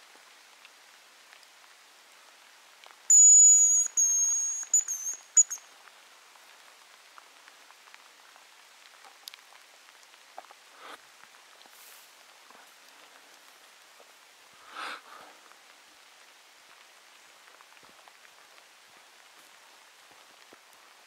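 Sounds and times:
light rain patter: 0.0s - 21.0s
high thin decoy whistle: 3.1s - 5.6s.

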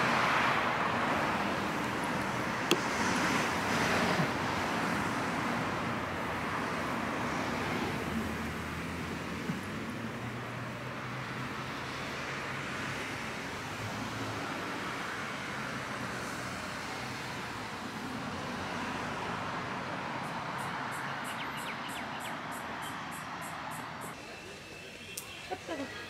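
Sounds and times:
car road noise: 0.0s - 25.2s.

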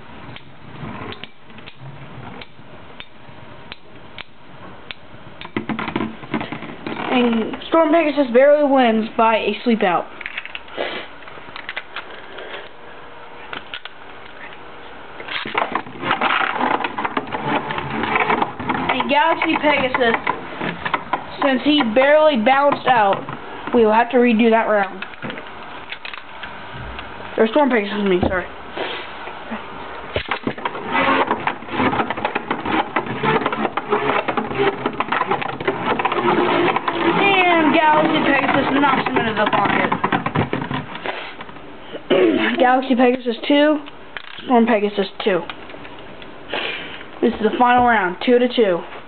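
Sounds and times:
tops clicking and rattling: 15.4s - 23.8s, 30.2s - 41.0s.

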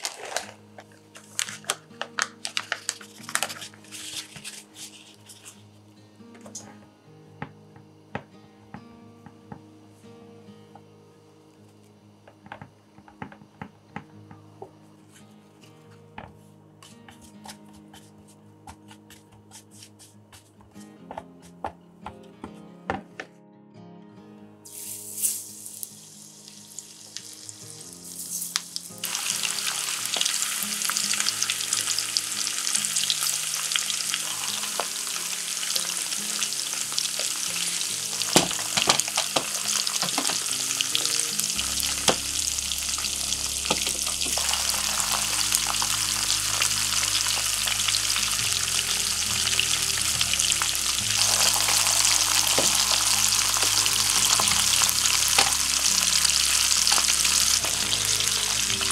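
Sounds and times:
oil sizzling deep-frying: 0.0s - 0.6s, 24.7s - 58.9s
oil popping: 28.5s - 58.9s.

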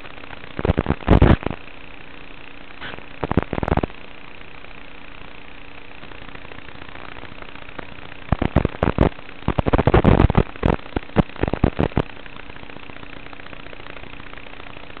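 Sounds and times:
crackling pops: 0.0s - 1.6s, 2.7s - 3.9s, 6.3s - 12.6s
static hiss: 0.0s - 15.0s.

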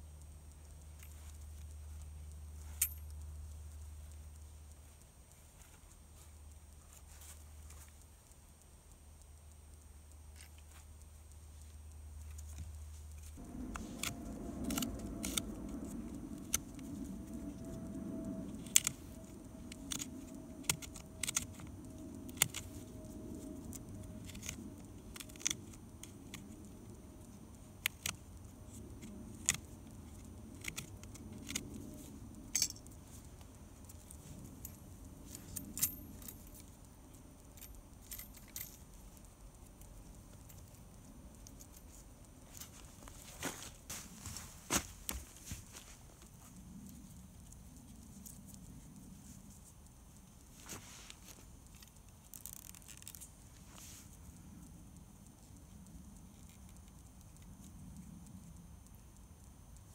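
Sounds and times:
low steady rumble: 0.0s - 59.9s
metallic clicks and clinks: 2.3s - 3.5s, 13.2s - 42.9s.

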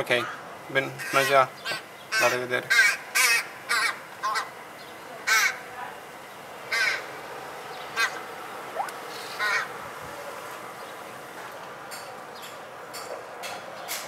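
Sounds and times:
crow cawing: 1.0s - 4.5s, 6.7s - 7.1s, 8.0s - 8.2s, 9.4s - 9.7s.

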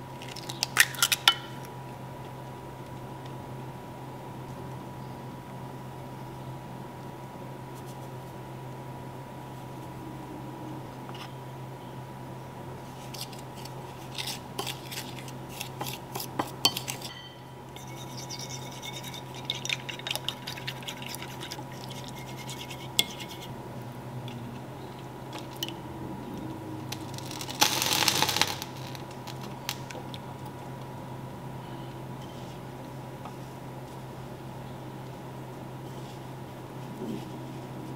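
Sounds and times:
fork scraping ceramic bowl: 13.0s - 23.5s
fork beating batter: 13.2s - 23.5s.

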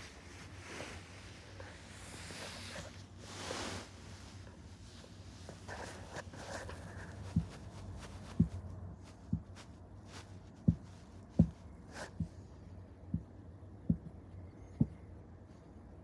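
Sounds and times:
faint room noise: 0.0s - 16.0s
soft low thumps: 5.6s - 15.4s.

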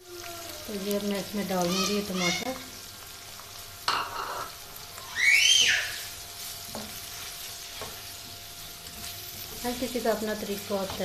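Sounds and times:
food sizzling in a wok: 0.0s - 11.0s
spoon tapping a pan: 3.9s - 4.6s.

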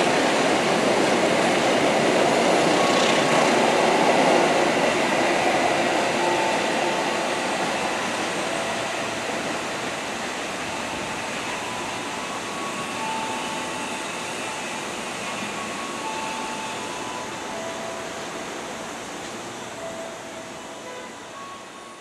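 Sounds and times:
train rolling over tracks: 0.0s - 22.0s.

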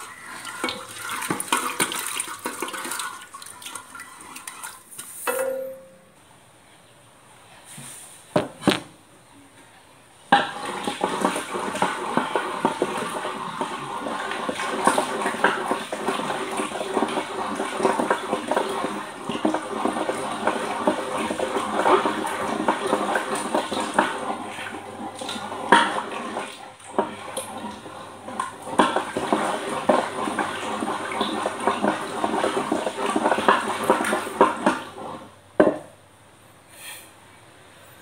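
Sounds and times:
wooden churner sloshing in dal: 0.0s - 5.0s, 10.4s - 35.3s.

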